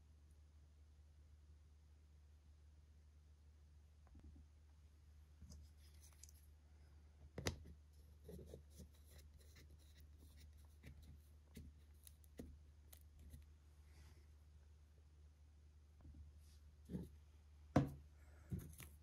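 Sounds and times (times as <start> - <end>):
faint ticks and scrapes of cap: 5.4 - 6.5, 7.4 - 13.5, 16.8 - 17.2, 18.5 - 19.0.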